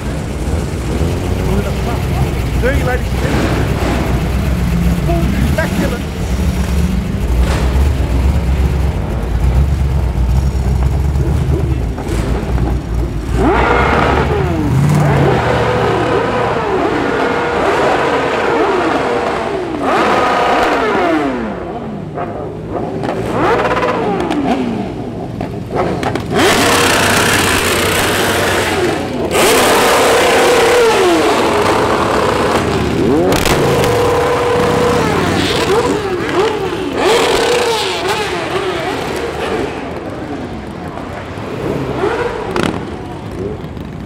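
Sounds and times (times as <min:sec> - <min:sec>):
loud rushing noise: 0:00.0 - 0:19.8
engines revving hard: 0:00.0 - 0:44.0.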